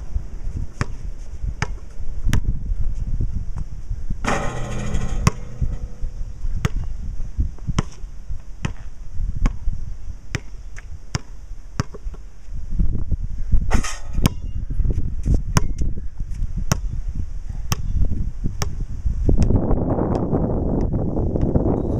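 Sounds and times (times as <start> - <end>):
wind buffeting microphone: 0.0 - 11.1, 12.6 - 21.9
long ringing sound: 4.2 - 7.0
basketball bouncing on concrete: 4.3 - 6.9.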